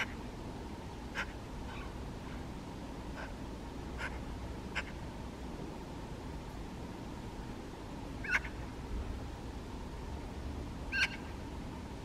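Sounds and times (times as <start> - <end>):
magpie calls: 0.0 - 0.2, 1.1 - 2.0, 4.0 - 5.0, 8.2 - 8.7, 10.9 - 11.4
steady low rumble: 0.0 - 12.0.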